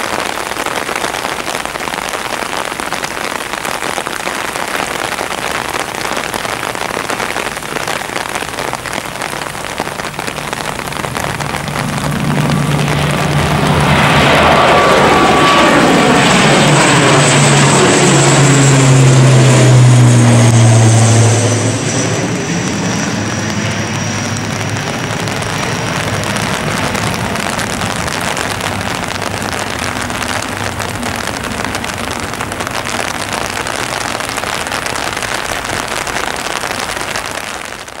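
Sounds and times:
high turbine whine: 0:00.0 - 0:38.0
turboprop airliner passing overhead: 0:09.9 - 0:38.0.

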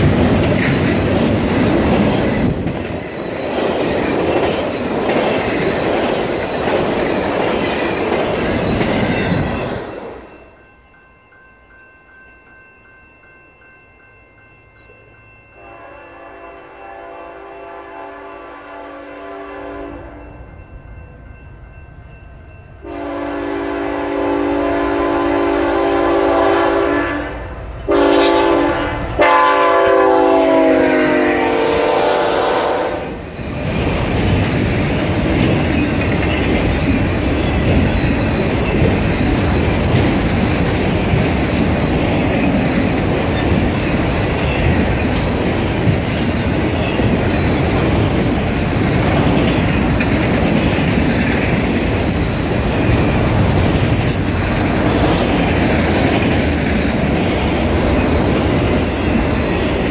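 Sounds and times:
train rumble and clickety-clack: 0:00.0 - 0:10.4, 0:19.6 - 0:59.9
train air horn: 0:15.6 - 0:20.2, 0:22.8 - 0:33.2.

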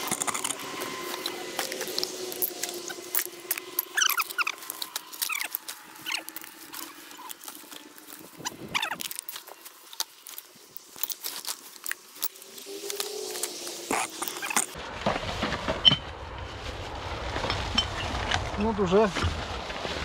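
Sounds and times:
short high squeaks: 0:00.0 - 0:07.5, 0:08.4 - 0:09.3, 0:12.8 - 0:14.8
plastic bag rustling and crinkling: 0:00.0 - 0:20.0.

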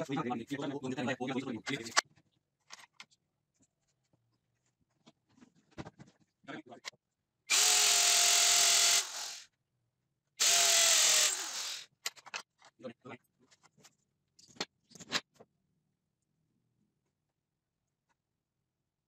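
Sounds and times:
electric hand drill whining: 0:07.5 - 0:09.4, 0:10.4 - 0:11.9.

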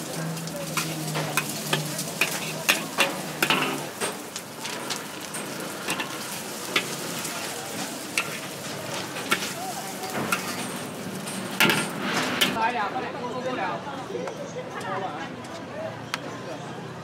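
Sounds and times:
noodles sizzling in a wok: 0:00.0 - 0:12.6
metal spatula scraping a wok: 0:00.3 - 0:12.6.

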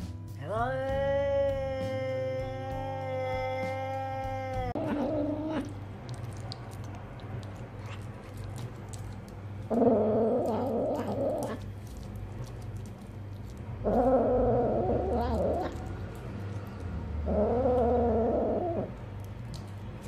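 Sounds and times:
cat yowling: 0:00.7 - 0:08.6, 0:09.7 - 0:11.7, 0:13.8 - 0:16.3, 0:17.2 - 0:19.0
cat growling over food: 0:02.3 - 0:19.8.

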